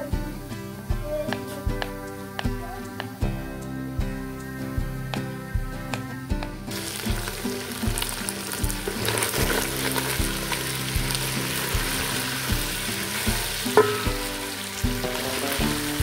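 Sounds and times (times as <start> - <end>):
background music with beat: 0.0 - 16.0
meat sizzling in oil: 6.3 - 16.0.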